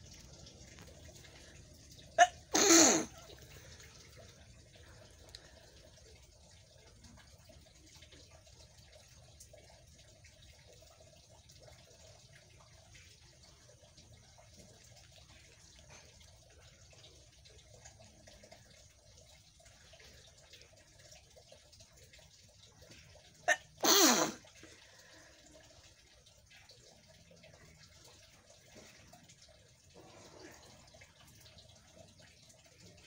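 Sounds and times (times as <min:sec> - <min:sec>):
woman sneezing: 0:02.2 - 0:03.2, 0:23.5 - 0:24.4.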